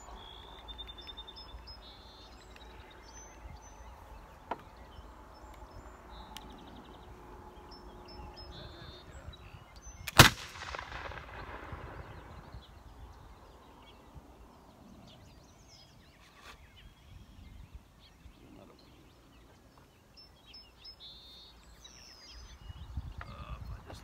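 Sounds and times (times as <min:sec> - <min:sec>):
pistol shot echoing: 0:10.1 - 0:12.5.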